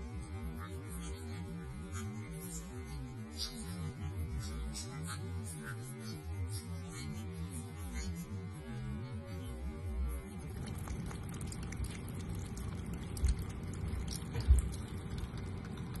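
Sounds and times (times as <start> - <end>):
faint pitched hum: 0.0 - 16.0
cat lapping water: 10.4 - 16.0
tap water running: 10.6 - 16.0.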